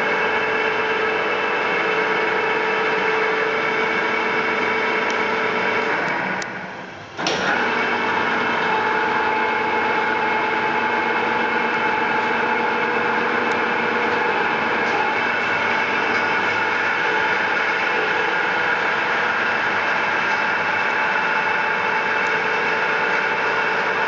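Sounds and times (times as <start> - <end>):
drilling machine mechanical hum: 0.0 - 24.0
machine starting click: 7.2 - 8.8.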